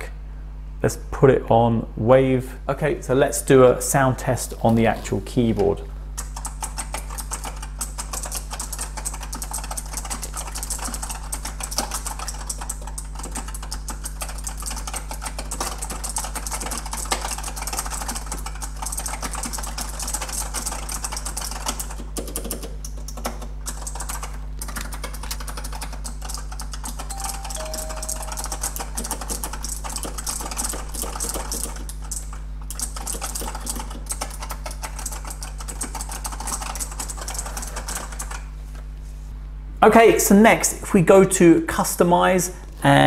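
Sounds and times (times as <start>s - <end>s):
fast clicky keyboard typing: 6.2s - 38.4s
low steady hum: 27.0s - 30.4s.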